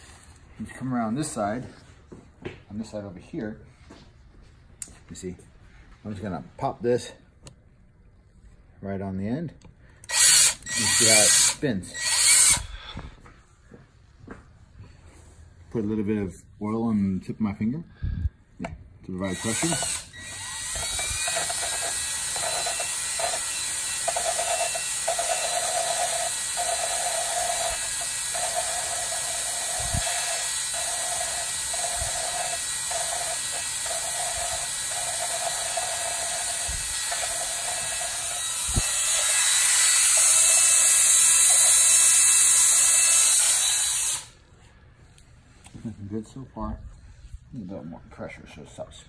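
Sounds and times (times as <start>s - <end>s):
cordless drill lapping valve: 10.0s - 12.7s, 19.2s - 44.4s.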